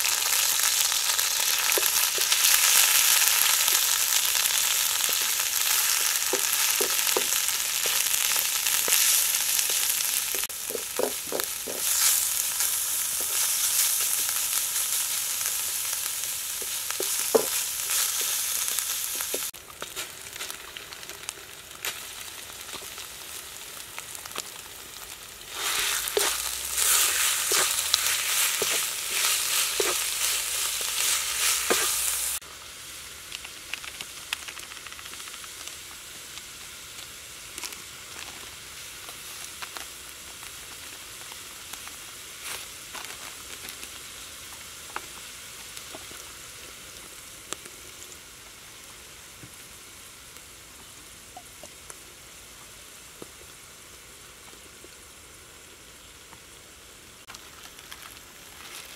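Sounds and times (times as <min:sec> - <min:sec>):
paste sizzling in a wok: 0:00.0 - 0:51.2, 0:51.9 - 0:58.9
spatula scraping a wok: 0:05.0 - 0:15.0, 0:16.6 - 0:19.5, 0:25.5 - 0:32.4.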